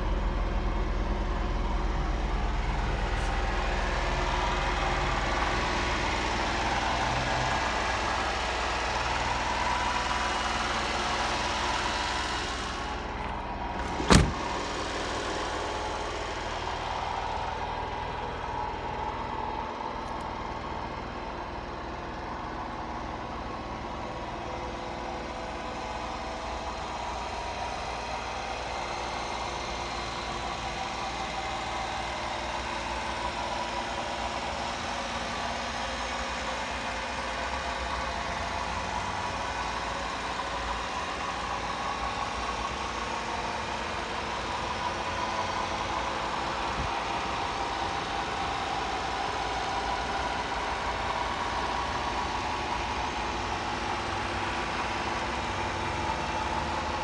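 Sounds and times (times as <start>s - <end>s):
small truck engine idling: 0.0s - 57.0s
sharp thump: 13.8s - 14.6s.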